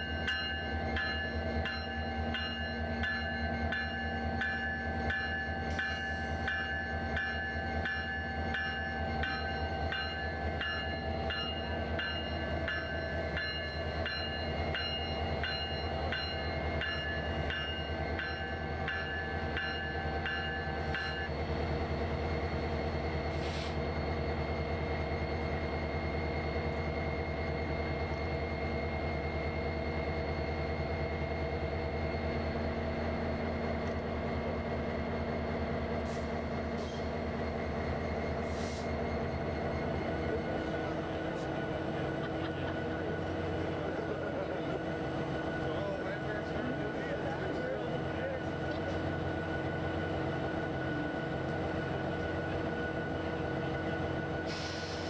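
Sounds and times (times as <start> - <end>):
locomotive bell ringing: 0.0 - 21.5, 24.0 - 54.5
diesel locomotive engine humming: 0.0 - 55.0
brief high hiss: 54.5 - 55.0.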